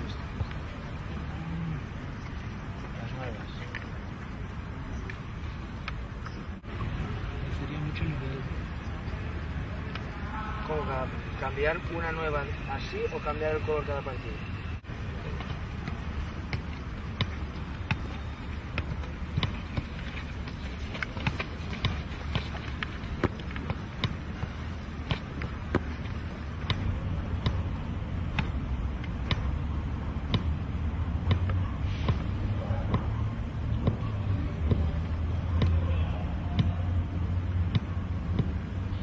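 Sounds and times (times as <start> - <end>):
ball kicked against boot: 15.3 - 27.7.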